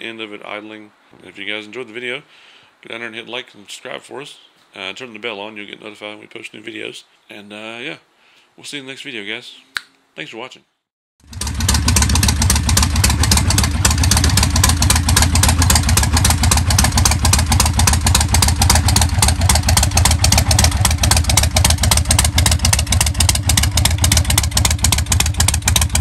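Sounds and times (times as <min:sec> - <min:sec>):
motorcycle engine idling: 0:11.2 - 0:26.0.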